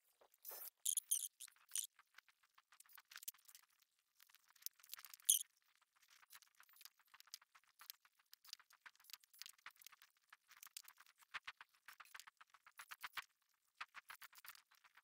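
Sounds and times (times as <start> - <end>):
small clicks and taps: 6.0 - 15.0.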